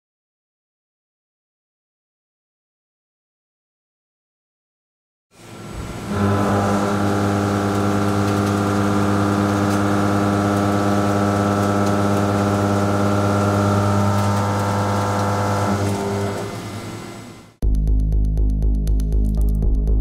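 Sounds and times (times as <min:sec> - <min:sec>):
milling cutter humming: 0:05.4 - 0:17.6.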